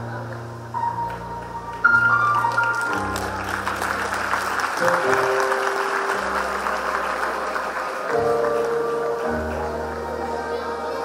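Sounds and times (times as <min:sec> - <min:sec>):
music with long held notes: 0:00.0 - 0:11.0
audience applauding: 0:01.1 - 0:11.0.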